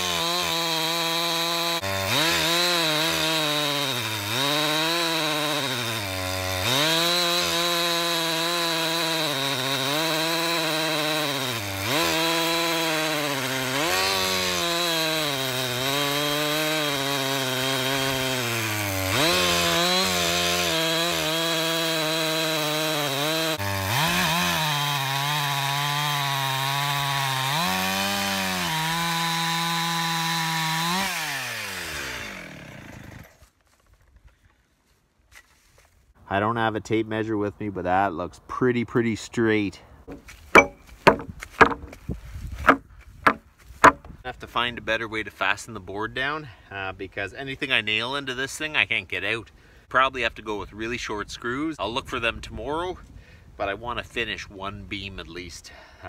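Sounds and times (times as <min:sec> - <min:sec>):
chainsaw cutting log: 0:00.0 - 0:34.4, 0:40.0 - 0:44.4.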